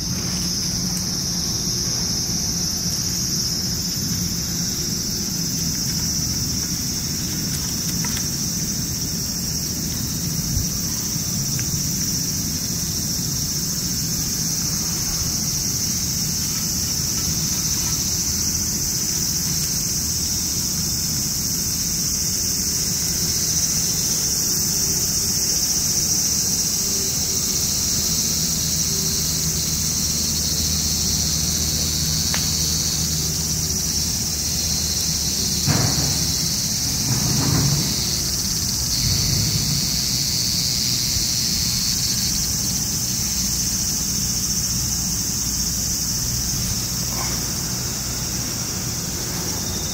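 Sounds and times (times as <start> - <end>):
insects shrilling: 0.0 - 49.9.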